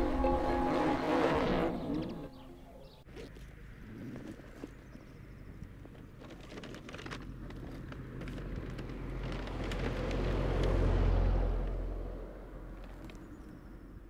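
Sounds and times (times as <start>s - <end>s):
car passing: 0.0s - 2.7s, 8.8s - 12.9s.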